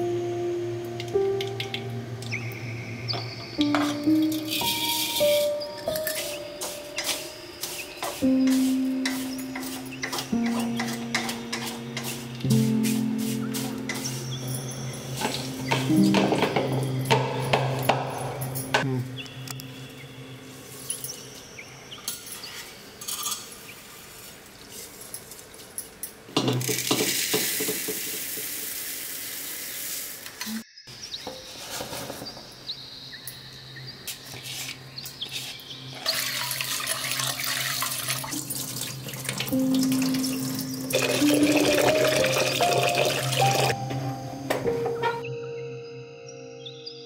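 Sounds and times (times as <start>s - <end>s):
utensils clinking: 3.1s - 19.7s, 20.8s - 23.8s, 35.4s - 45.3s
tap water running into pot: 26.6s - 30.2s, 36.0s - 40.3s, 40.9s - 43.7s.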